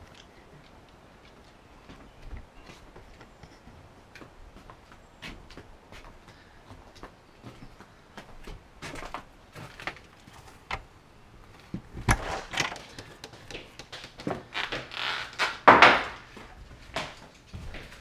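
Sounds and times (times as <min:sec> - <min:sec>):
door opening and shutting: 0:11.8 - 0:13.0, 0:14.2 - 0:16.2.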